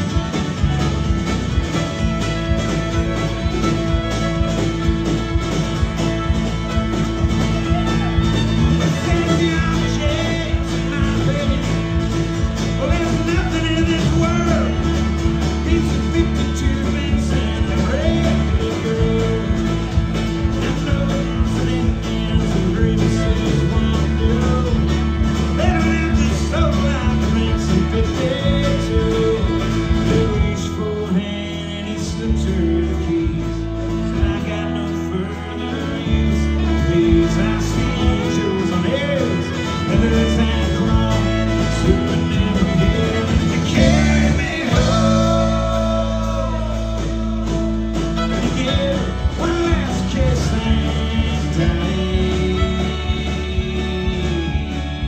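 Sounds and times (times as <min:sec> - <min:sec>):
country-rock band playing: 0:00.0 - 0:55.0
lead guitar bending notes: 0:00.0 - 0:55.0.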